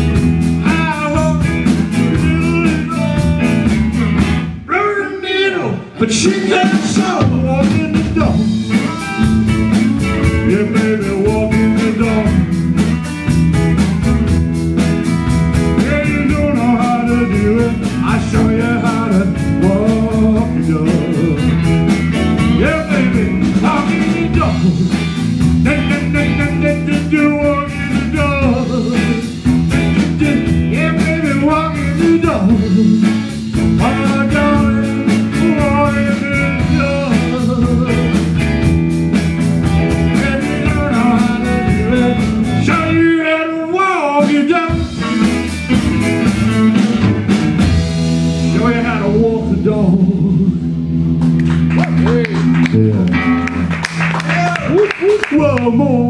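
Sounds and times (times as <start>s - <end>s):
blues-rock band playing: 0.0s - 56.0s
lead vocals singing: 5.6s - 9.3s, 15.8s - 21.6s, 22.5s - 29.4s.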